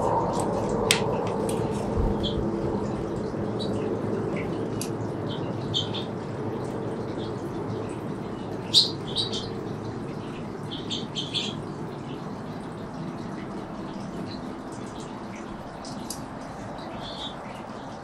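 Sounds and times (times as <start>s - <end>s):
low background rumble: 0.0s - 18.0s
finches chirping: 3.2s - 6.1s, 7.0s - 17.9s.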